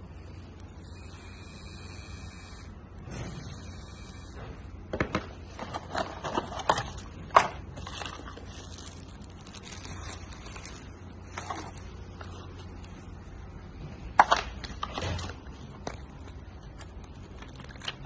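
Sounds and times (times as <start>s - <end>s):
plastic and cardboard rustling: 4.9s - 18.0s.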